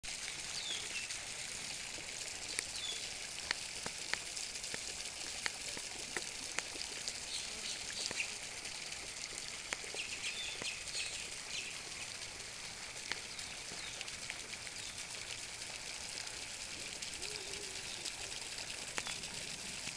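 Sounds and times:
small birds chirping: 0.5s - 1.2s, 2.4s - 3.2s, 6.5s - 8.4s, 9.7s - 12.2s, 13.1s - 14.1s, 14.8s - 15.1s, 17.2s - 18.2s, 18.9s - 19.4s.

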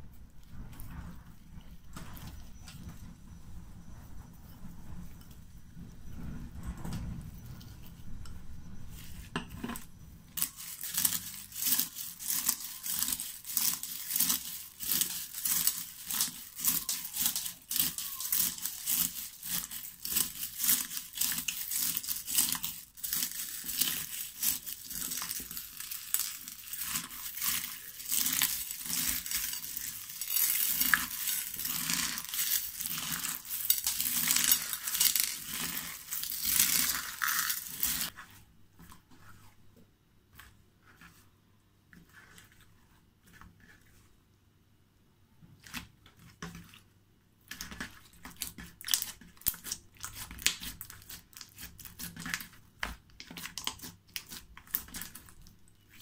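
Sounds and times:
beaded slime clicking and crinkling: 10.4s - 38.1s.

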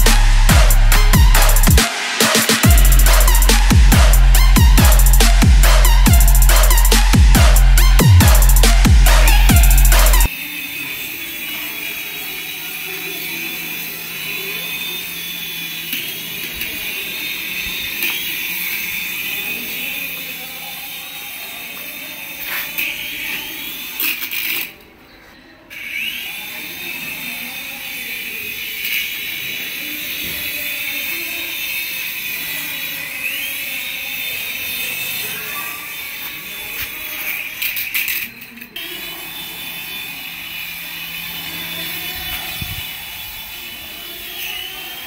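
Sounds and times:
toy helicopter rotor motors whining: 0.0s - 25.0s, 25.6s - 45.0s.

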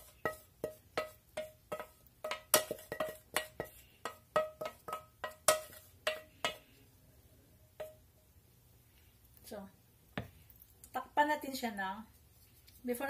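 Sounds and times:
spatula knocking on metal pan: 0.0s - 6.6s, 7.8s - 8.0s.

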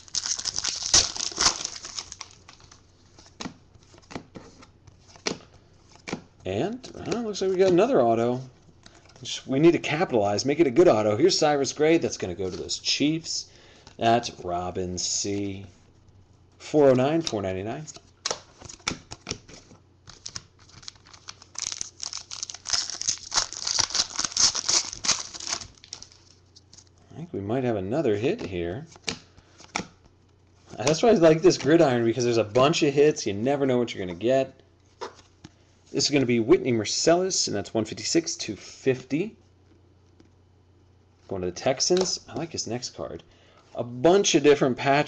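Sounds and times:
foil wrapper crinkling: 0.0s - 2.8s, 20.2s - 26.4s.

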